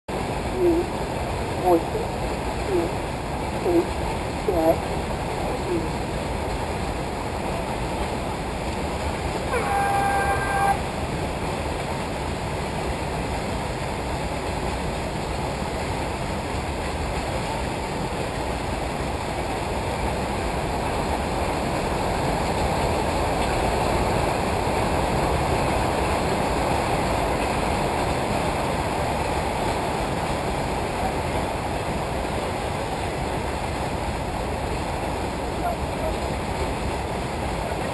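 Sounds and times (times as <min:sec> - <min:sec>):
steady rushing noise: 0:00.1 - 0:37.9
electronic horn tone: 0:09.5 - 0:10.8.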